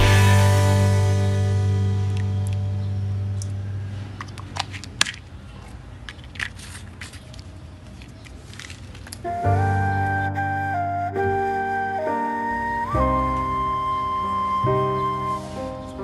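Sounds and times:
flute music: 0:00.0 - 0:02.9, 0:09.2 - 0:16.0
guitar music: 0:00.0 - 0:04.1.

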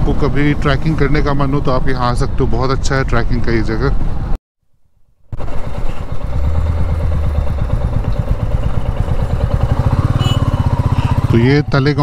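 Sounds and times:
wind and road noise: 0:00.0 - 0:04.4, 0:05.1 - 0:12.0
motorcycle engine running: 0:05.3 - 0:12.0.

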